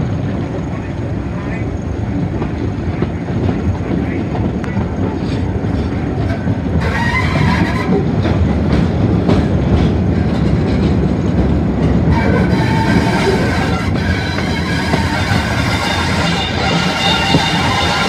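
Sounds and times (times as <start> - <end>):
train rumbling at speed: 0.0 - 18.0
wheels clicking over rail joints: 2.2 - 18.0
high wheel squeal: 6.8 - 8.1, 12.1 - 18.0.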